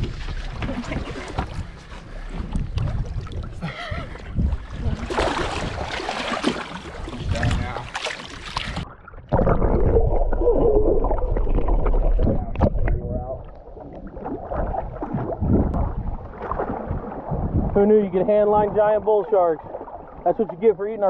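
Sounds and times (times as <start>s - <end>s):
muffled underwater rush: 0.0s - 21.0s
water splashing from thrashing shark: 4.3s - 17.8s.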